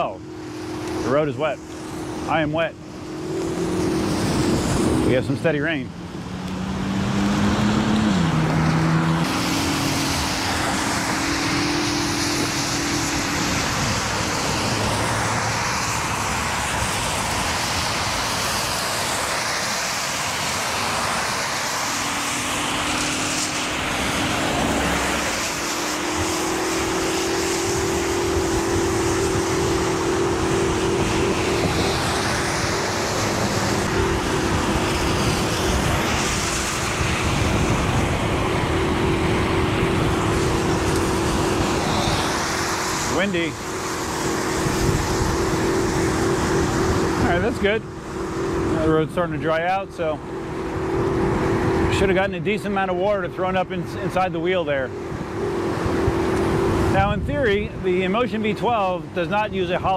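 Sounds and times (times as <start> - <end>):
wind on microphone: 0.0 - 59.9
electric motor whine: 6.0 - 49.1.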